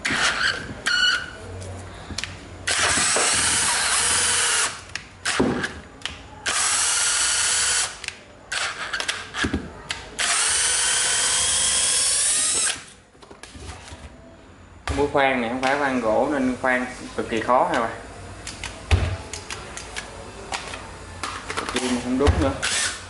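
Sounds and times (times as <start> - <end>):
cordless drill boring into wood: 2.7 - 4.8, 10.2 - 12.8, 22.6 - 23.0.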